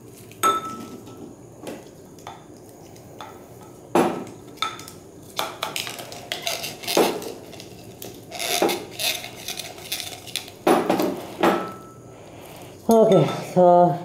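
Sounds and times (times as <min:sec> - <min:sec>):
rubbing from handling: 0:06.4 - 0:11.4.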